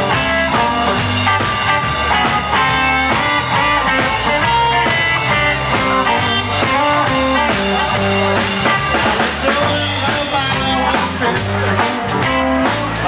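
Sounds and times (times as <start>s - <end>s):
bass: 0.0s - 13.0s
drums: 0.0s - 13.0s
electric guitar: 0.0s - 13.0s.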